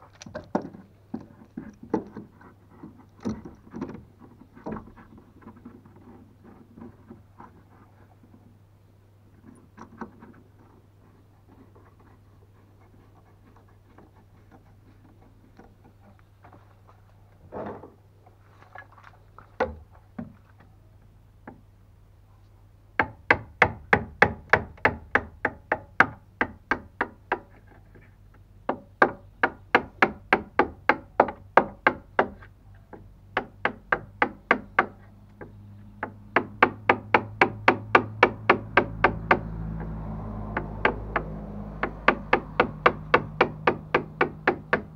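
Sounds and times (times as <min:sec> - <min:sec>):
chisel struck into wood: 0:23.0 - 0:27.5, 0:28.7 - 0:35.0, 0:36.0 - 0:39.5, 0:40.5 - 0:44.9.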